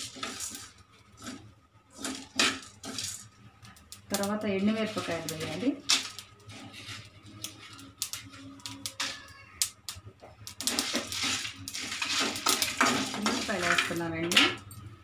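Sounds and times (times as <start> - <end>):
metal spoon scraping metal pan: 0.0 - 3.3, 10.6 - 14.6.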